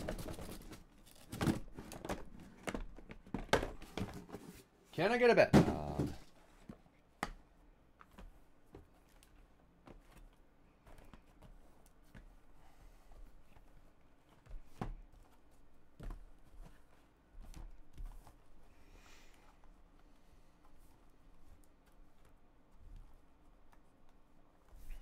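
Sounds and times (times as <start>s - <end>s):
cardboard boxes knocking together: 5.5s - 6.3s.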